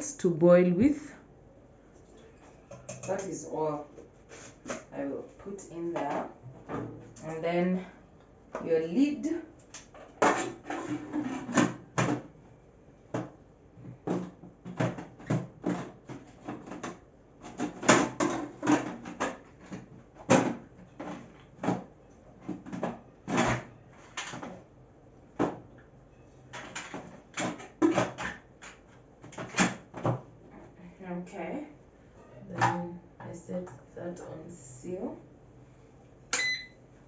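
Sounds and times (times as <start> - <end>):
kitchen items clicking and knocking: 26.5 - 30.1.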